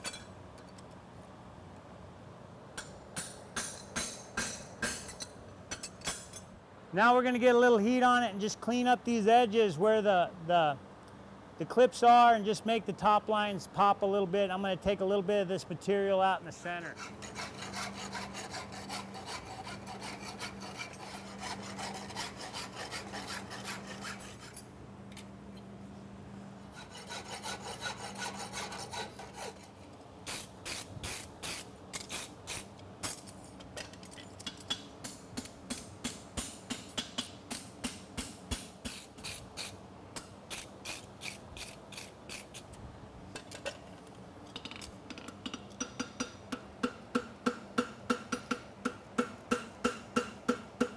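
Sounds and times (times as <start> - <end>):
steady low hum: 0.0 - 50.9
rasp filing horseshoe: 16.8 - 24.6, 26.7 - 32.6.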